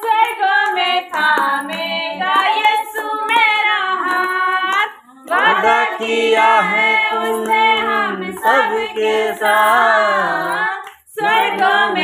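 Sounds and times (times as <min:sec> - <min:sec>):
person singing devotional song: 0:00.0 - 0:12.0.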